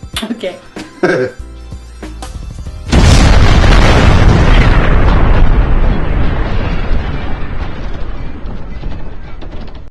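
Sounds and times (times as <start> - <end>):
deep explosion tail: 2.4 - 9.9.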